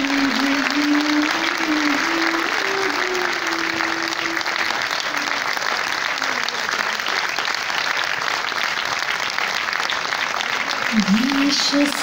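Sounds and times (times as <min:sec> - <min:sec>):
held musical note: 0:00.0 - 0:05.5
audience applauding: 0:00.0 - 0:12.0.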